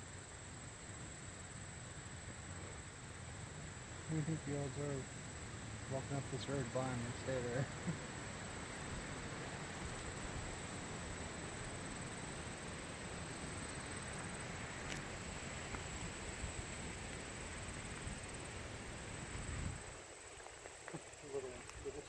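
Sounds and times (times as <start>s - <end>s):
insects droning: 0.0s - 22.0s
wind hiss: 0.0s - 22.0s.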